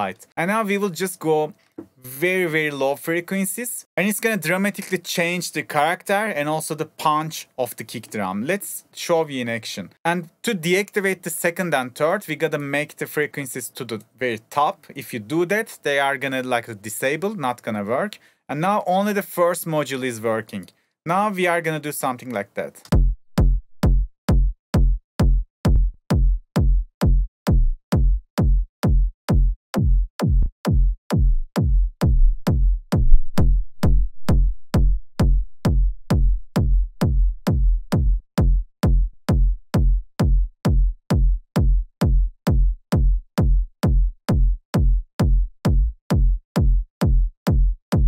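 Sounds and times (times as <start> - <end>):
distorted techno kick drum: 22.9 - 48.0.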